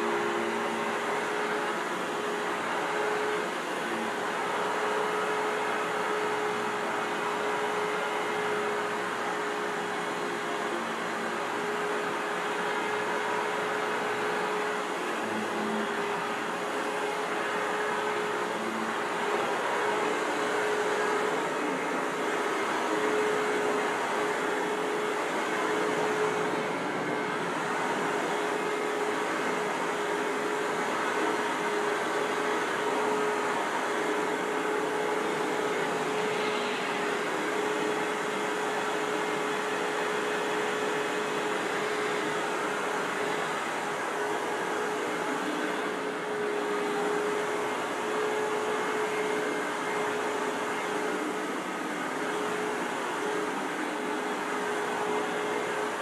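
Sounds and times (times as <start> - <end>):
vacuum cleaner running: 0.0 - 56.0.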